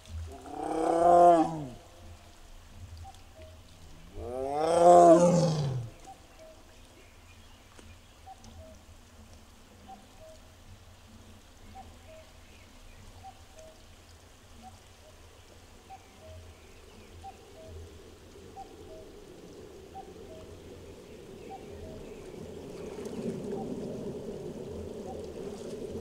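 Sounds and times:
tiger roaring: 0.3s - 1.8s, 4.1s - 6.0s.

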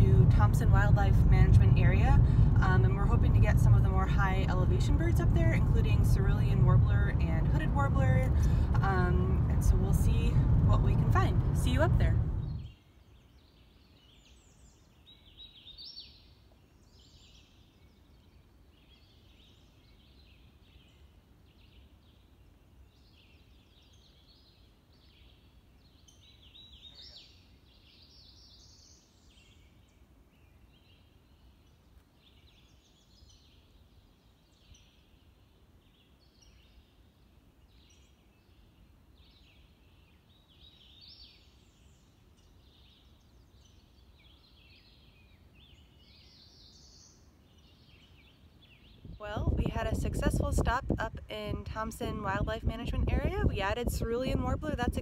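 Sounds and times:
faint low rumble: 0.0s - 12.7s, 45.6s - 55.0s
songbirds singing: 0.0s - 55.0s.

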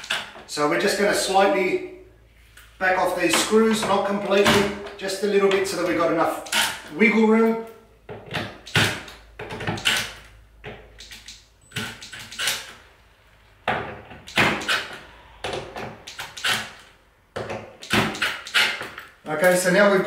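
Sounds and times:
tool scraping and clicking on screws: 0.0s - 0.4s, 6.4s - 6.9s, 8.2s - 12.8s, 14.3s - 19.6s.

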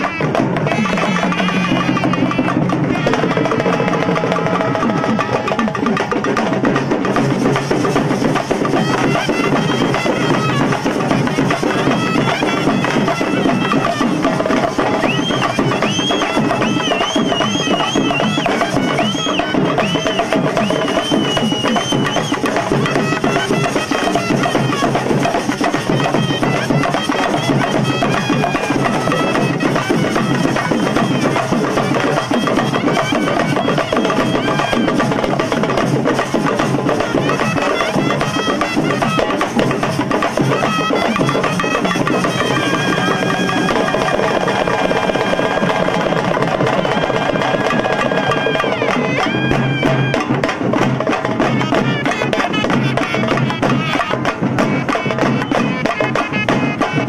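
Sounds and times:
dense drumming: 0.0s - 52.0s
reedy pipes playing melody: 8.6s - 35.4s, 40.4s - 50.4s.

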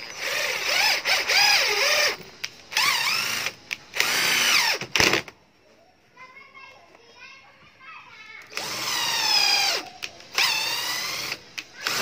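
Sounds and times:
cordless drill driving a screw: 0.1s - 5.2s, 8.5s - 12.0s.

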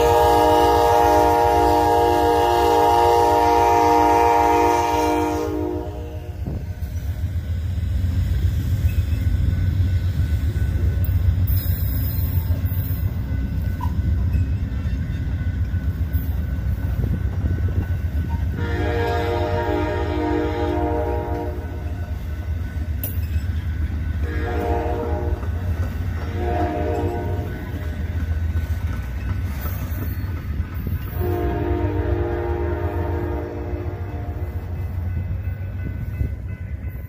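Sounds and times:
train horn chord: 0.0s - 6.7s, 18.5s - 22.2s, 24.2s - 27.9s, 31.0s - 35.3s
train cars rumbling past: 0.0s - 37.0s
wheels clattering on rail joints: 8.0s - 19.6s, 21.8s - 32.1s.

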